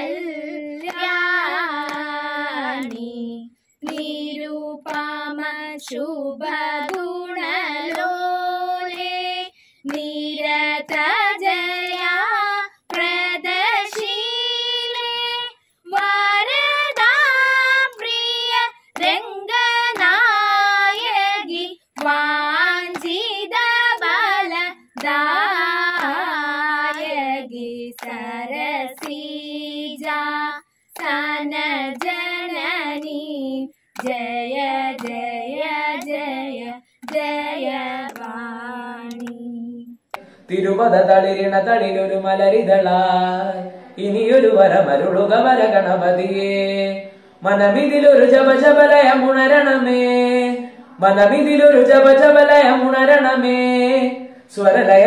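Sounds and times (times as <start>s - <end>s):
girls singing together: 0.0s - 40.4s.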